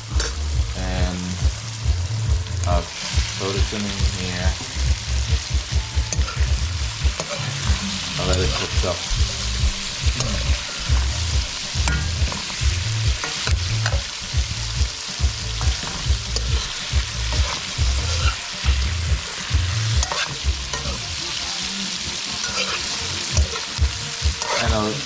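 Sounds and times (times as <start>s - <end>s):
food sizzling in a pan: 0.0s - 25.0s
metal spoon scraping a pan: 6.1s - 14.3s, 15.5s - 21.6s, 22.2s - 25.0s.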